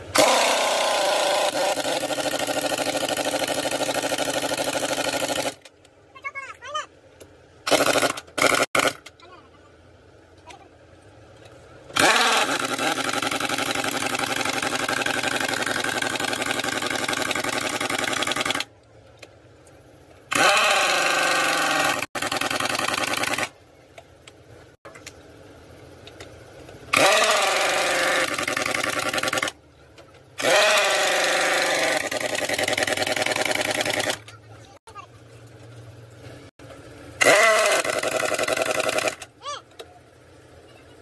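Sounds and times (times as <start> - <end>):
handheld power tool running: 0.1 - 5.7, 7.7 - 9.1, 11.9 - 18.7, 20.3 - 23.5, 26.9 - 29.6, 30.4 - 34.4, 37.2 - 39.3.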